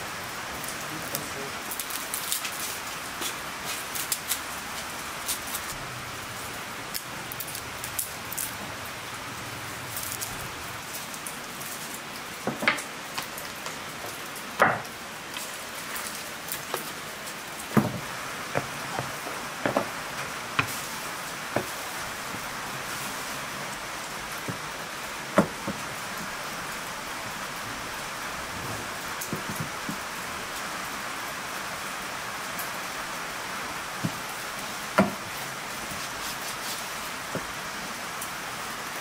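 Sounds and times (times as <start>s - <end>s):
garlic skin crackling: 1.7s - 5.8s, 6.8s - 8.9s, 9.8s - 11.4s, 35.3s - 37.5s.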